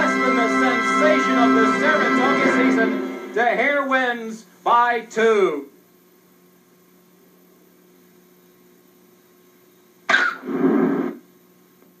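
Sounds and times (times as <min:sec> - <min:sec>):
faint electrical hum: 0:00.0 - 0:12.0
person coughing: 0:10.1 - 0:10.5.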